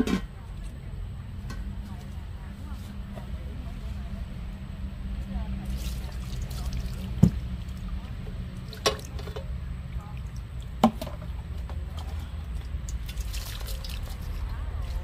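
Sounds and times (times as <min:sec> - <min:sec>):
water splashing over metal lid: 0:05.6 - 0:15.0.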